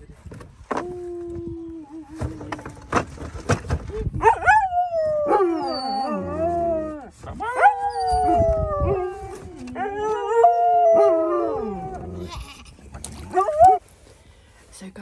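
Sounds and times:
dog howling: 0:04.2 - 0:12.2, 0:13.2 - 0:13.8
second dog howling: 0:04.3 - 0:12.2.

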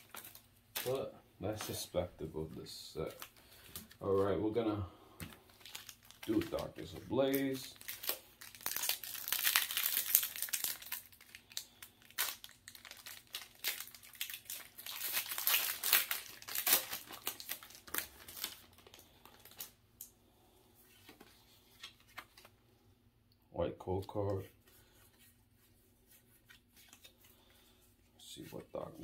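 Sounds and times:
foil wrapper crinkling and tearing: 0:00.0 - 0:01.9, 0:05.4 - 0:19.8.

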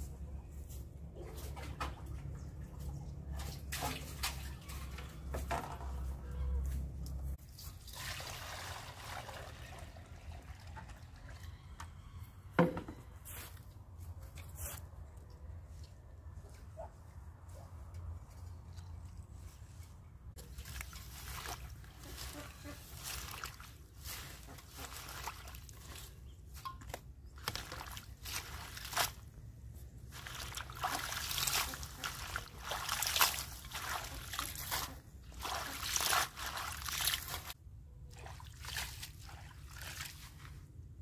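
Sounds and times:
water sloshing in steel bowl: 0:01.2 - 0:06.2, 0:20.4 - 0:29.3, 0:30.0 - 0:40.7.

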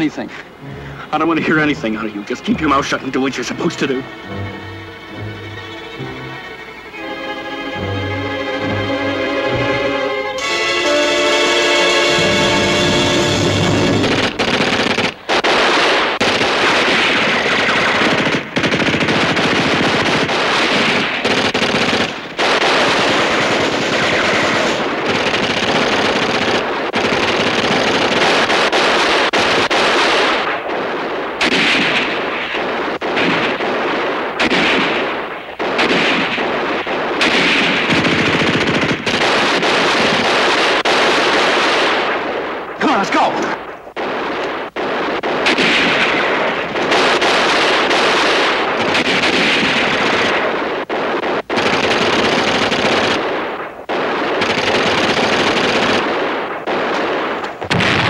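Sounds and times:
machine-gun fire: 0:13.6 - 0:42.7, 0:43.6 - 0:58.0.

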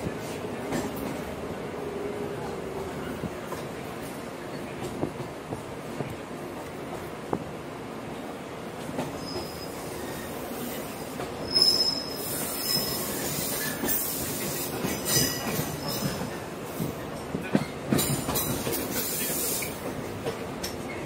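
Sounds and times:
train wheels squealing: 0:09.0 - 0:16.3.

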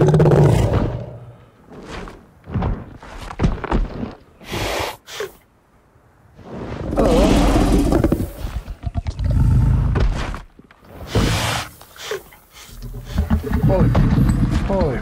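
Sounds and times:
heavy thudding footsteps: 0:00.8 - 0:04.3, 0:12.9 - 0:15.0
dinosaur growl: 0:06.9 - 0:10.0.

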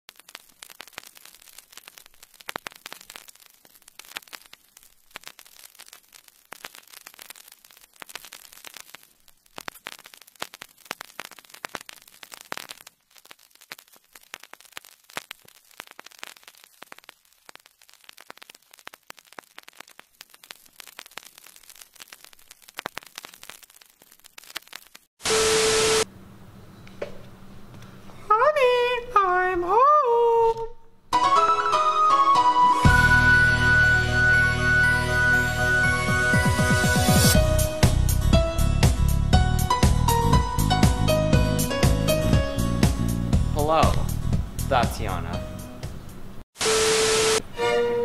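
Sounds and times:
crackles and pops: 0:00.0 - 0:26.1, 0:32.9 - 0:45.3, 0:46.4 - 0:47.4
static hiss: 0:00.1 - 0:26.2, 0:35.4 - 0:38.3, 0:38.9 - 0:48.0.

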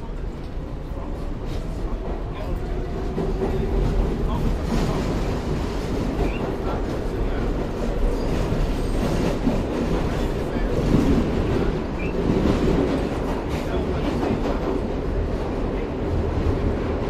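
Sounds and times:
subway train wheels on track: 0:00.0 - 0:17.0.

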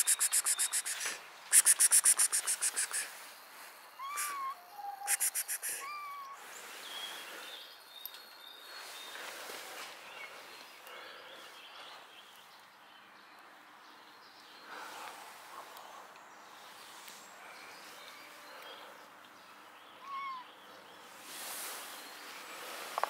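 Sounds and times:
bird whistled notes: 0:00.0 - 0:03.1, 0:04.0 - 0:06.3
birds rattling chatter: 0:00.0 - 0:03.1
outdoor hiss: 0:00.0 - 0:04.4, 0:05.1 - 0:07.4, 0:21.1 - 0:23.0
faint bird chirps: 0:00.0 - 0:09.3, 0:16.6 - 0:23.0.

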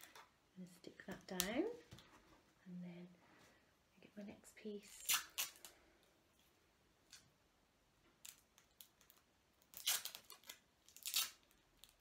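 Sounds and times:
sticky tape pulled and torn: 0:05.0 - 0:05.7, 0:08.2 - 0:12.0.

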